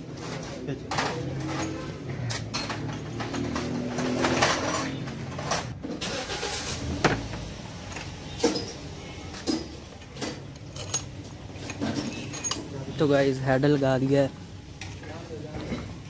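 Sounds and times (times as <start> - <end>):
vehicle engine humming: 0.0 - 15.4
tools knocking on metal: 2.5 - 4.7.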